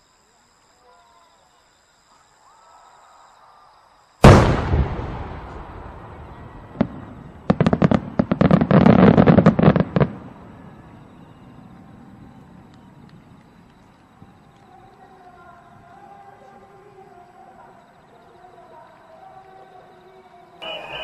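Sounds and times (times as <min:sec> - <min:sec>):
firework crackling pops: 0:04.2 - 0:10.8, 0:12.3 - 0:14.9
firework crack: 0:04.2 - 0:14.8.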